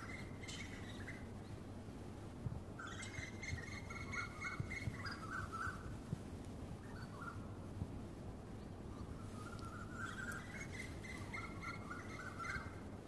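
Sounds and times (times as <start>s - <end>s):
low outdoor background hum: 0.0s - 13.0s.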